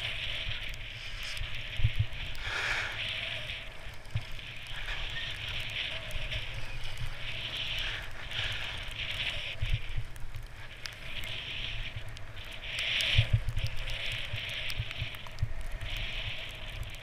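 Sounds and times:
skis scraping over snow: 0.0 - 17.0
wind rumbling on microphone: 0.0 - 17.0.

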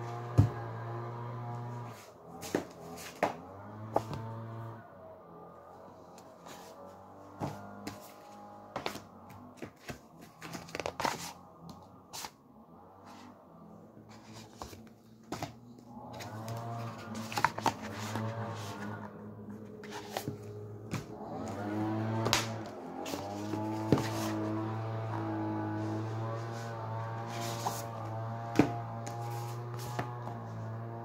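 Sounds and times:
book handling clicks and rustles: 1.8 - 4.3, 6.1 - 12.4, 14.1 - 21.6, 22.2 - 30.5
rising and falling tones: 20.5 - 29.0.

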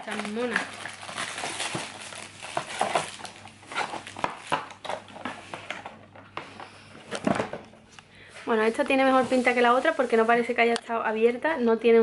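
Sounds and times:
cardboard and paper rustling: 0.0 - 7.6, 8.5 - 10.4.

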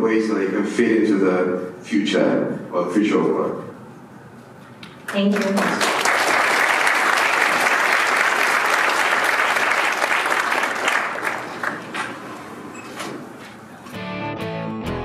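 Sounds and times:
audience applauding: 5.1 - 12.4.

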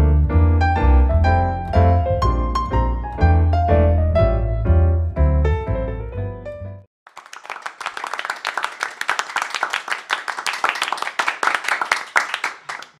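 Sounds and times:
piano music: 0.0 - 6.9
applause: 7.0 - 13.0.

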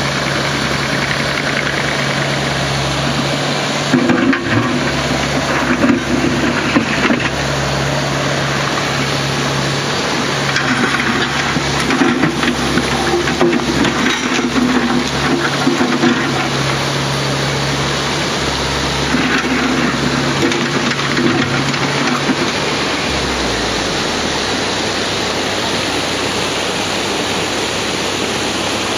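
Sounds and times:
diesel engine running: 0.0 - 28.9
hydraulics whining: 0.0 - 28.9
mountain stream rushing: 0.0 - 28.9.

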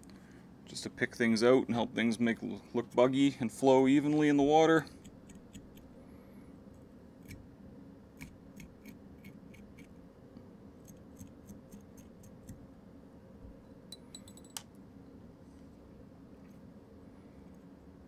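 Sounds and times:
brush scratching fly body: 4.9 - 5.9, 8.2 - 10.0, 10.8 - 12.6.

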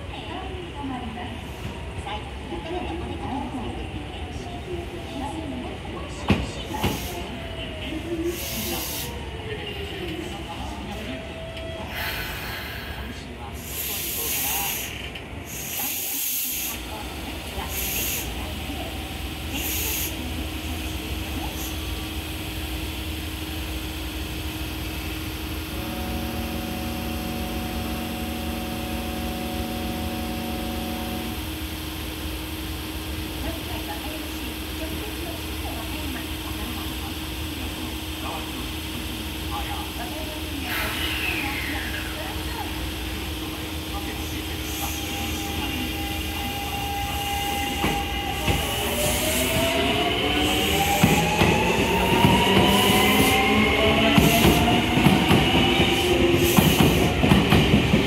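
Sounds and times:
electric train equipment hum: 16.7 - 40.4.

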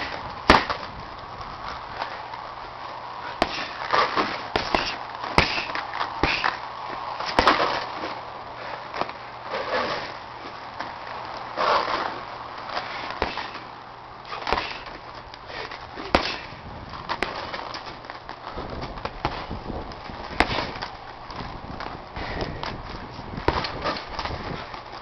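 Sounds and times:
gloves punching heavy bag: 0.0 - 0.9, 3.3 - 6.6, 7.2 - 7.8, 13.1 - 13.7, 14.3 - 18.0, 18.6 - 24.8.

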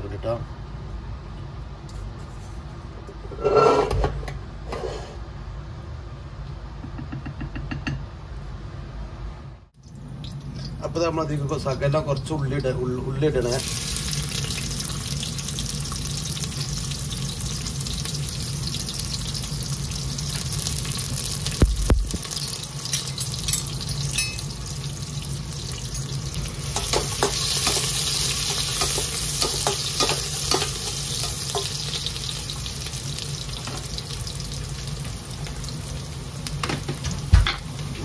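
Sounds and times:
onions sizzling in hot fat: 13.4 - 38.0.

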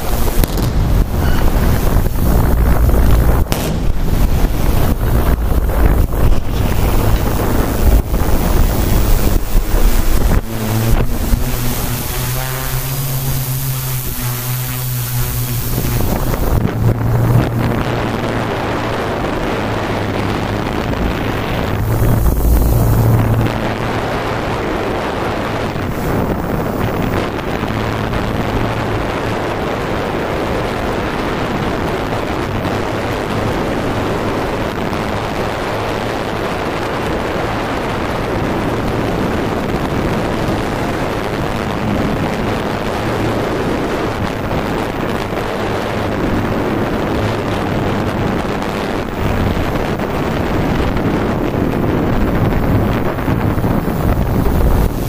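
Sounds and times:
drone propellers humming: 0.0 - 55.0
wind noise on microphone: 0.0 - 55.0.

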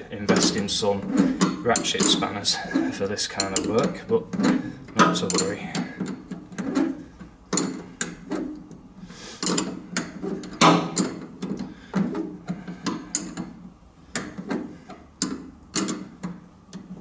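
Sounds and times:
spanner clicking on a nut: 15.2 - 16.9.

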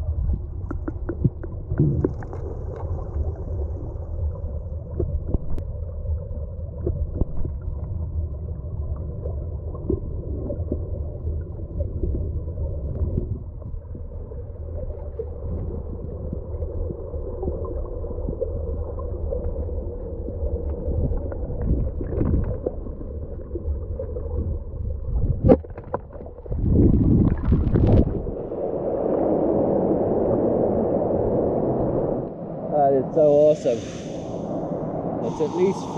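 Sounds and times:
small underwater clicks and knocks: 0.0 - 3.6, 4.3 - 13.9, 14.9 - 26.6
muffled underwater flowing water: 0.0 - 35.9.

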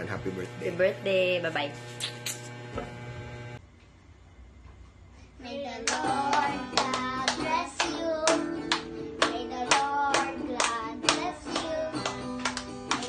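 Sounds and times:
children singing: 5.5 - 8.5, 9.2 - 12.2
hand claps: 5.8 - 13.0
strummed acoustic guitar: 5.9 - 13.0.

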